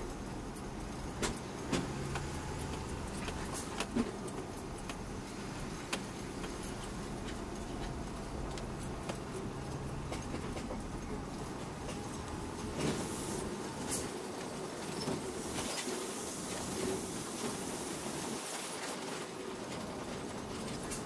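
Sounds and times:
truck engine hum: 0.0 - 15.5
cab rattling and knocking: 5.9 - 13.0.

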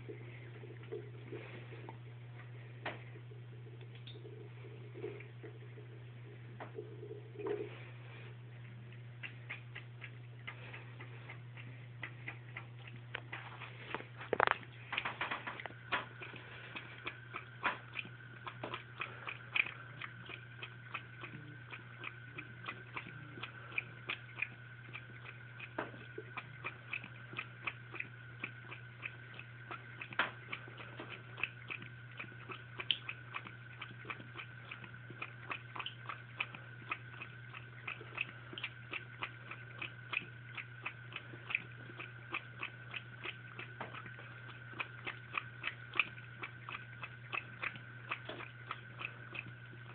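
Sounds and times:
cat lapping water: 0.0 - 49.9
running faucet: 12.4 - 49.9.

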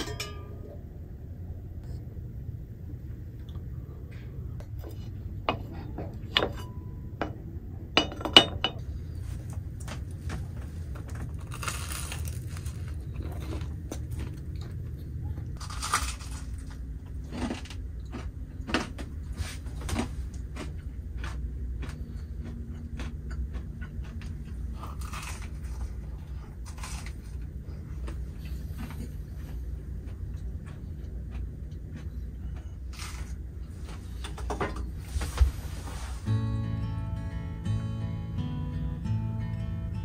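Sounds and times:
low rumble: 0.0 - 8.0
crunchy bites into sandwich: 11.4 - 14.4, 15.6 - 19.1.

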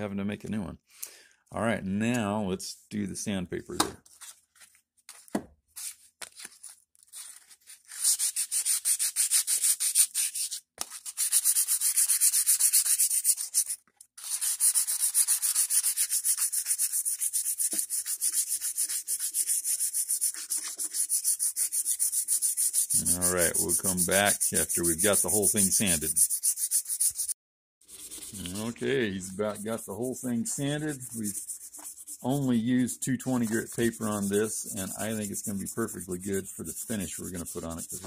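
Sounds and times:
sandpaper rubbing wood: 7.2 - 38.0
scrapes: 27.9 - 38.0.

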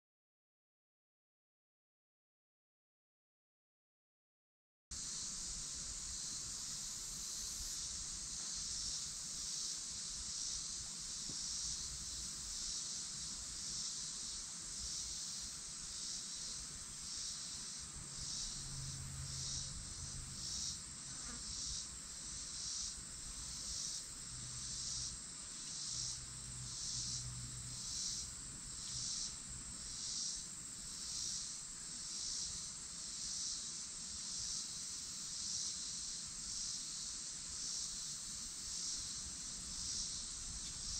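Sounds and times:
insects buzzing: 4.9 - 40.9.

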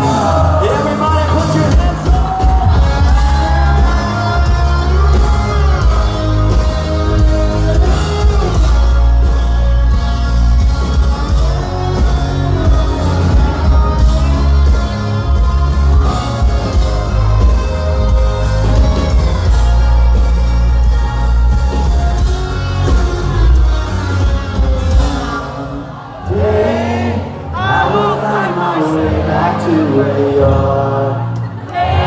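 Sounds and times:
loud steady drums: 0.0 - 25.6
bass: 0.0 - 32.0
rock band playing live: 0.0 - 32.0.

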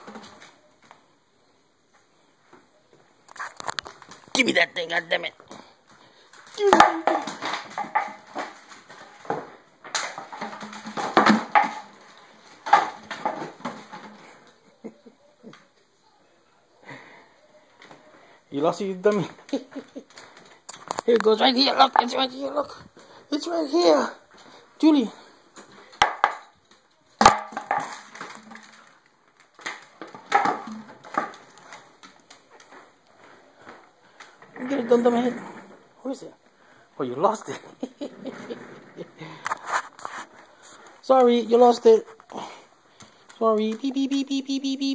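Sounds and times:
plastic bottle hitting floor: 0.0 - 1.0, 5.4 - 14.5, 25.6 - 32.9
toy and claws clattering on wood: 3.3 - 14.6, 25.6 - 33.0.

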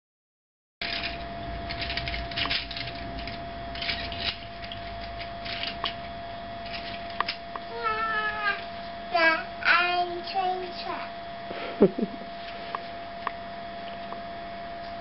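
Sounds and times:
plastic toy train clicking and rattling: 0.8 - 6.0, 6.7 - 7.4
faint steady hum: 0.8 - 15.0.

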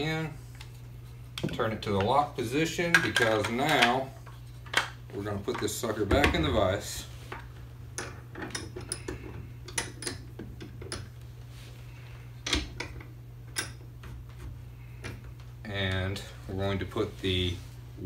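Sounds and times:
clicks and knocks of metal parts: 8.0 - 11.2.

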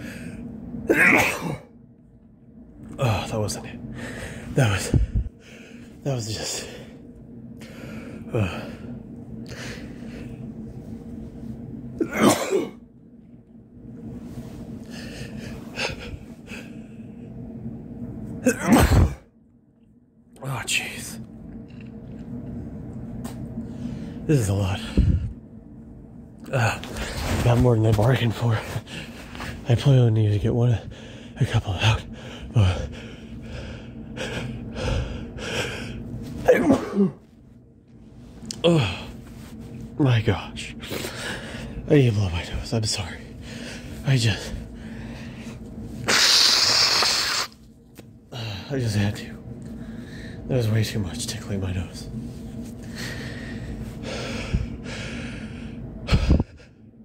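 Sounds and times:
man sneezing: 0.9 - 1.7, 12.0 - 12.8, 18.4 - 19.2, 36.4 - 37.2, 46.1 - 47.6.

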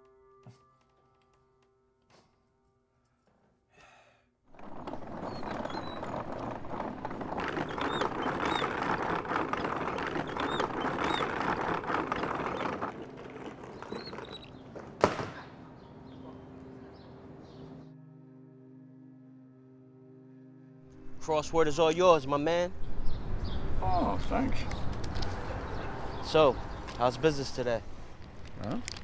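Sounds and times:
cart wheels rattling on pavement: 4.5 - 15.2
birds chirping: 4.7 - 17.9, 22.0 - 28.4.

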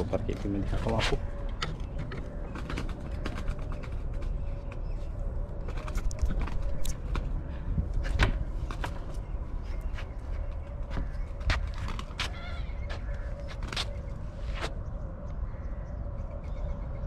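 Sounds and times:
footsteps on wooden planks: 9.8 - 14.7.

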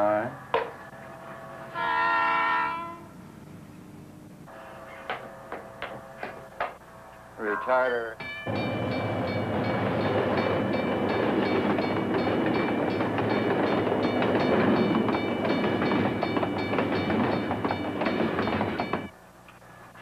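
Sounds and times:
freight cars rumbling: 8.5 - 19.1.

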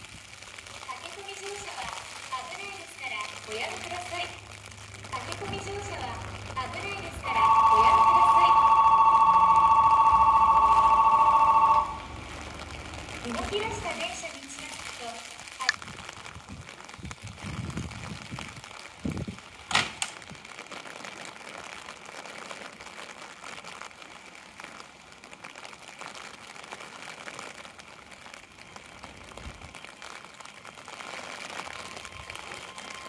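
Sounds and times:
electric train running: 5.3 - 13.9.

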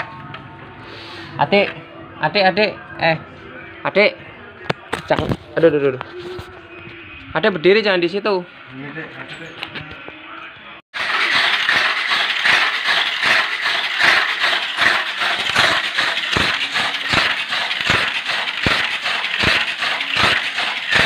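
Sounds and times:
toy car motor whirring: 11.0 - 21.0.

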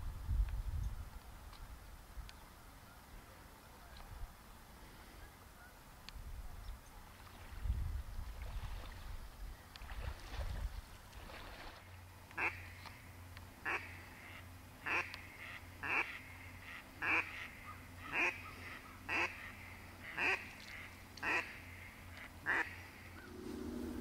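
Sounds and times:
duck quacking: 12.4 - 12.7, 13.6 - 23.3.

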